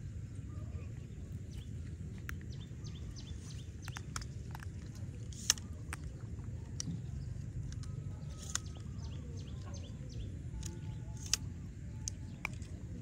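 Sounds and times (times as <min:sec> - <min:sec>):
high chirps and clicks: 0:02.2 - 0:06.1.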